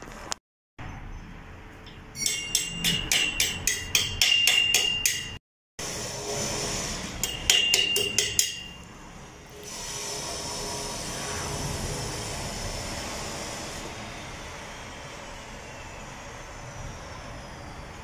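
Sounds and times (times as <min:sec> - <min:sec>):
ringing metallic taps: 0:01.8 - 0:05.4, 0:07.2 - 0:08.9.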